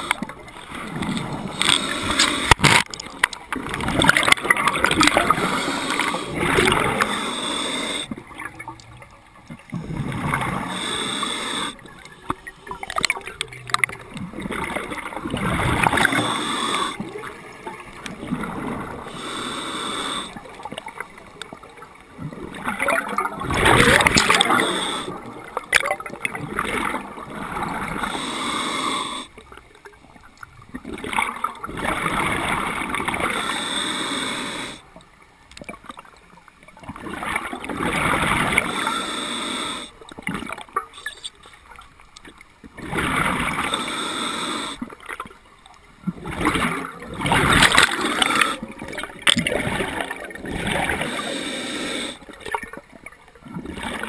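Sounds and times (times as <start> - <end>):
exhaled bubbles gurgling: 0.0 - 34.9, 35.6 - 41.8, 42.6 - 54.0
regulator inhalation hiss: 5.2 - 8.1, 10.6 - 11.8, 16.0 - 17.0, 19.1 - 20.4, 24.1 - 25.1, 28.0 - 29.3, 33.3 - 34.8, 38.7 - 40.0, 43.6 - 44.8, 51.0 - 52.2.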